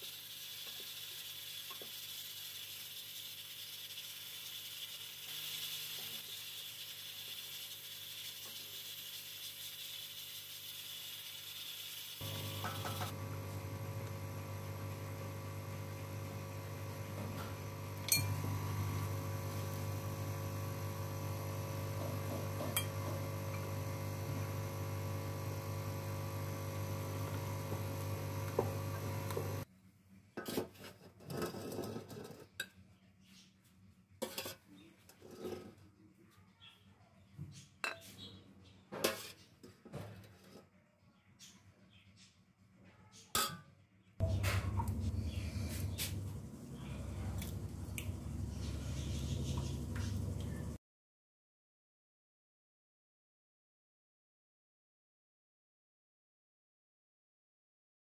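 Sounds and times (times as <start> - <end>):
metal spoon scraping dishes: 34.2 - 35.8
steady hum: 44.2 - 50.8.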